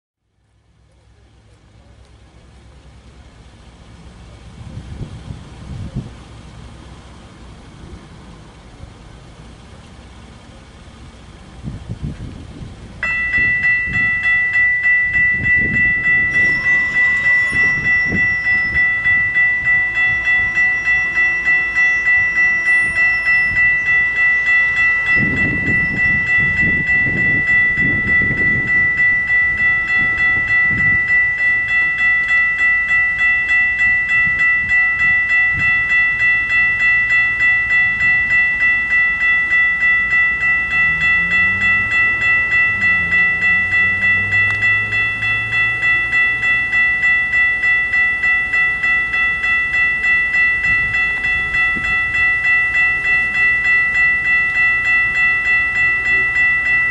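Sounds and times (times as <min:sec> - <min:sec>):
railroad crossing bell ringing: 0:00.7 - 0:56.9.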